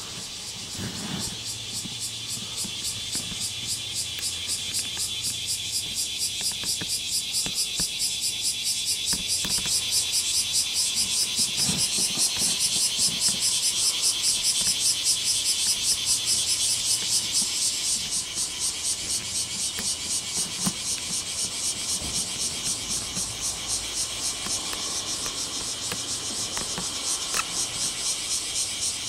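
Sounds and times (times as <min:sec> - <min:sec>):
cicadas buzzing: 0:00.0 - 0:29.0.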